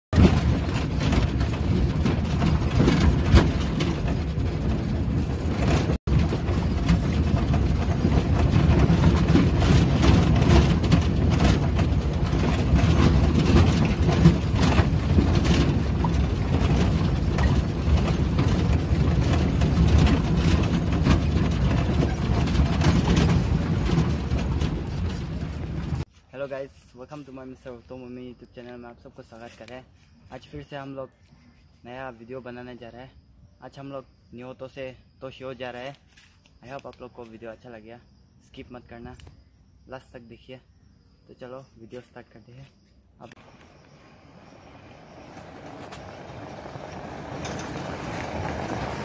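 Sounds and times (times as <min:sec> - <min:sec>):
car engine rumble: 0:00.1 - 0:26.1, 0:43.2 - 0:49.0
car body knocks and rattles: 0:00.2 - 0:26.1, 0:44.7 - 0:49.0.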